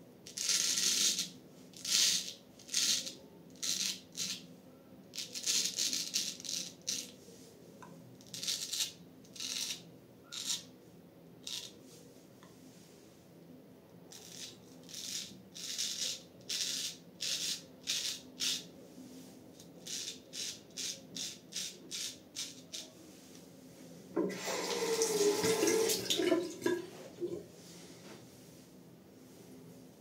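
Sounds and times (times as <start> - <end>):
tap running: 24.2 - 27.4.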